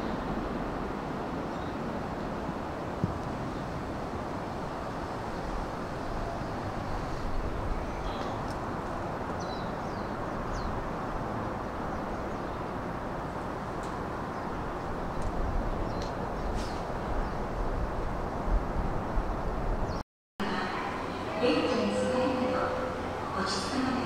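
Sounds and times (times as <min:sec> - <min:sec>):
outdoor background noise: 0:00.0 - 0:24.0.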